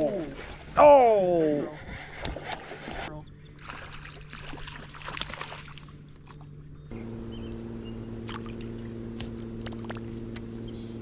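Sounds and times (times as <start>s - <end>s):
low hum of several pitches: 6.0s - 11.0s
faint bird chirps: 6.8s - 9.2s, 9.8s - 11.0s.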